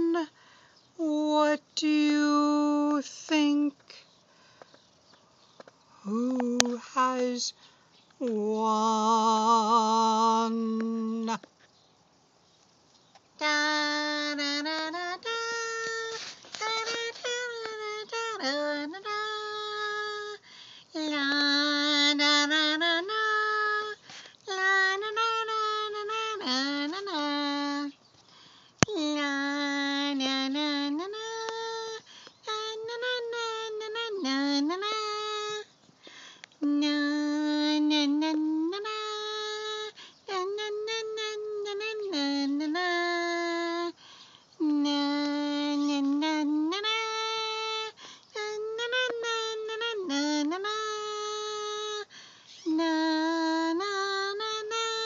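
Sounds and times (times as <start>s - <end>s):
high voice singing slowly: 0.0s - 4.1s, 5.9s - 7.6s, 8.2s - 11.5s, 13.1s - 28.1s, 28.8s - 35.8s, 36.6s - 55.0s
high voice singing: 13.4s - 20.4s.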